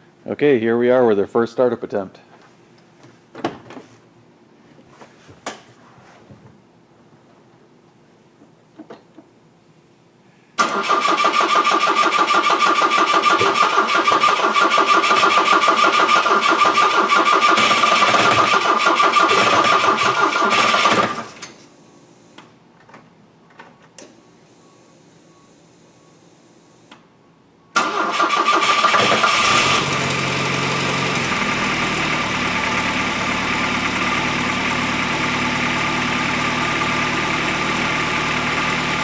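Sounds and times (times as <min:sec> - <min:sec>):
engine cranking on starter: 0:10.6 - 0:21.4, 0:27.8 - 0:30.3.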